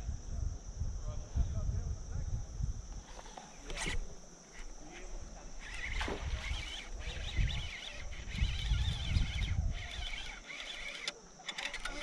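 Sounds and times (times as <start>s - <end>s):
fishing reel winding: 5.6s - 12.0s.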